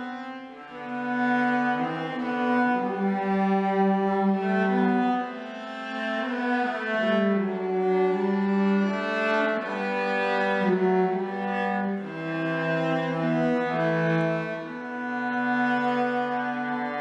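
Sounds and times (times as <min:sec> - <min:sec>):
bowed cello duet: 0:00.0 - 0:17.0.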